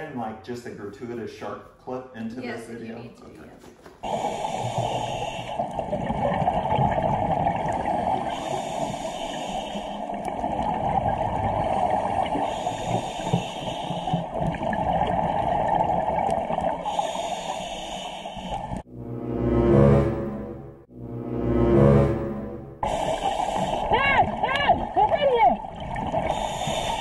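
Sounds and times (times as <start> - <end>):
underwater water rush: 4.0 - 18.9, 21.4 - 27.0
music: 18.9 - 22.9.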